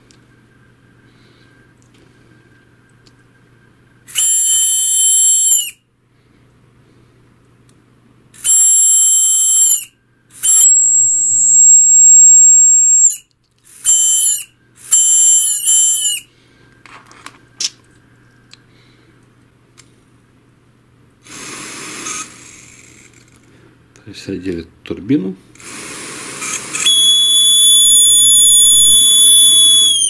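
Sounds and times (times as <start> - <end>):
fan motor high-pitched squeal: 3.4 - 5.8, 8.4 - 16.3, 26.4 - 30.0.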